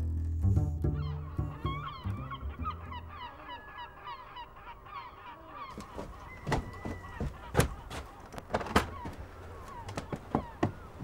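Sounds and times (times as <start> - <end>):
waterbirds honking: 0.8 - 11.0
footsteps on wooden walkway: 5.7 - 11.0.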